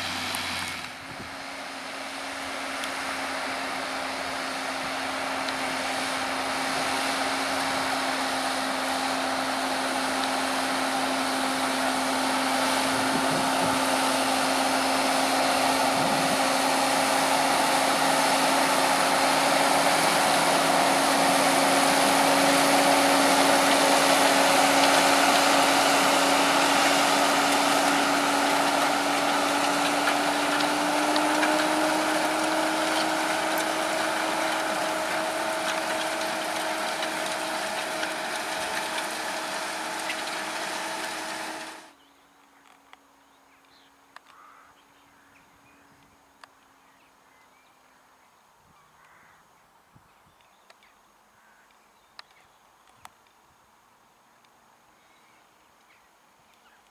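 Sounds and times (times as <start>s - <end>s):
tractor diesel engine under load: 0.0s - 42.0s.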